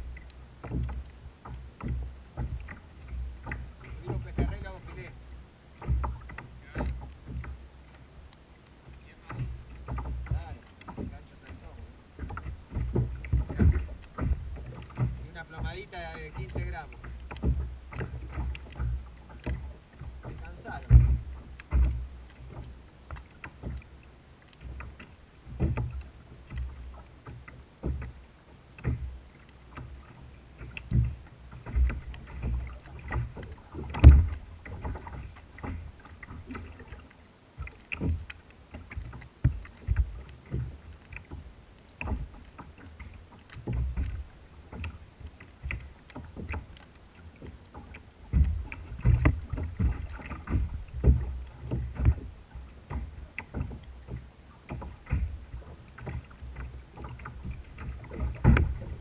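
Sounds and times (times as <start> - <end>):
waves slapping against hull: 0.0 - 59.0
sharp knock on hull: 9.2 - 19.7, 20.3 - 22.7, 30.9 - 35.8, 57.1 - 59.0.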